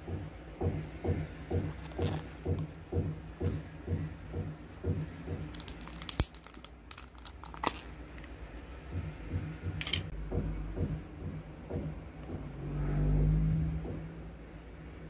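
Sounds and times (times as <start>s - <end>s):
soft low beat: 0.0s - 5.5s, 8.4s - 14.3s
plastic lid peeling and crinkling: 5.6s - 8.3s.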